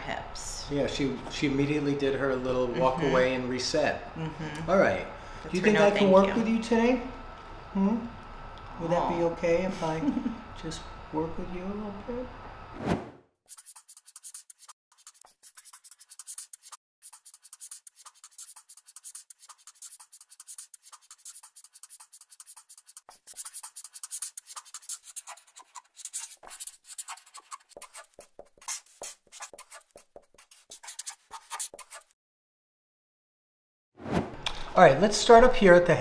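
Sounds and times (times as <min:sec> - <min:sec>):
pen scratching on paper: 0:13.5 - 0:32.1.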